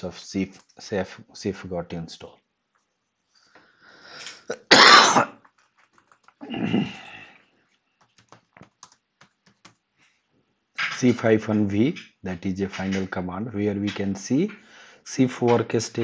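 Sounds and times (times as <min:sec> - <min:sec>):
person clearing throat: 0:04.5 - 0:05.4, 0:06.4 - 0:07.2
person coughing: 0:04.5 - 0:05.4, 0:06.4 - 0:07.2
keyboard clicks: 0:05.4 - 0:06.4, 0:08.0 - 0:09.8.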